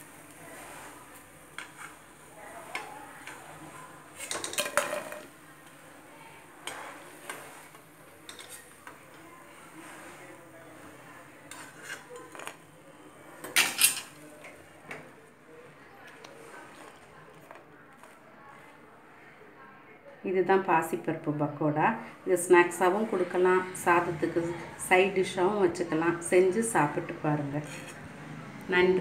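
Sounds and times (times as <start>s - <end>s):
steel ladle scraping a pan: 0.0s - 5.4s, 6.6s - 14.6s, 27.5s - 28.1s.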